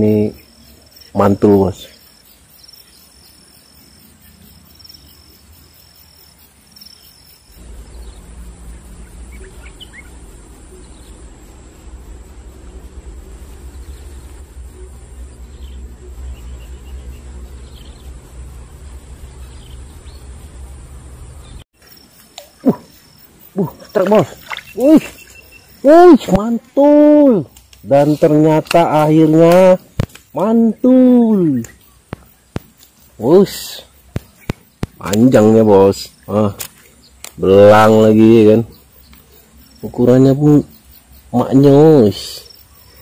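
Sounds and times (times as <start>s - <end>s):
faint bird chirps: 0.0s - 43.0s
high insect whine: 0.0s - 43.0s
insects trilling: 0.0s - 43.0s
low rumble: 7.6s - 21.6s.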